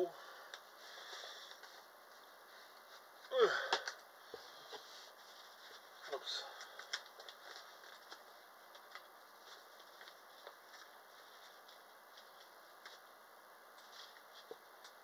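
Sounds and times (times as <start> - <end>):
hands handling wrapped item: 4.7 - 15.0.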